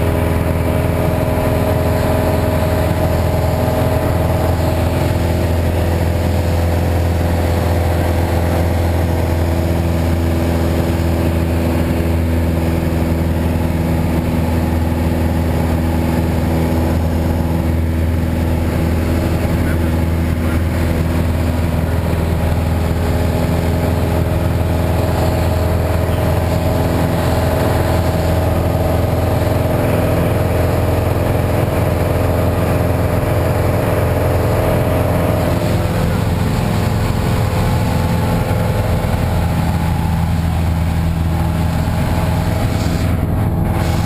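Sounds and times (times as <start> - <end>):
airplane engine drone: 0.0 - 44.0.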